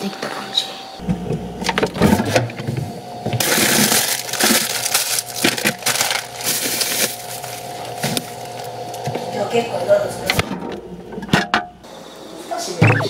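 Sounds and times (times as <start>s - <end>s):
plastic bag crinkling: 3.4s - 7.8s
packaging knocks and rustles: 3.4s - 8.4s.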